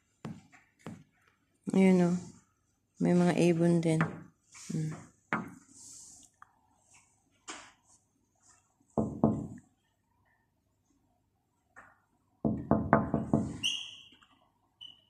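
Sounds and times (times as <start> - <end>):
knocking on window glass: 9.0 - 9.6, 12.4 - 13.6.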